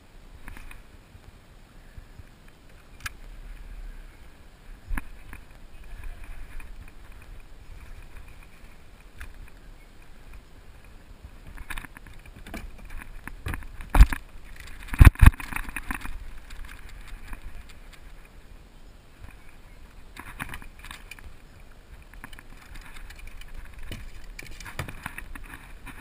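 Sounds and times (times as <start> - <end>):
brief rustle: 22.0 - 26.0.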